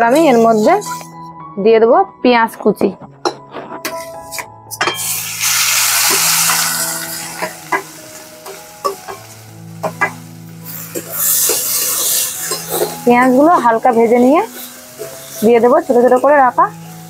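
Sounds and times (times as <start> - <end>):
onions sizzling in oil: 4.0 - 17.0
metal spatula scraping pan: 9.8 - 16.3.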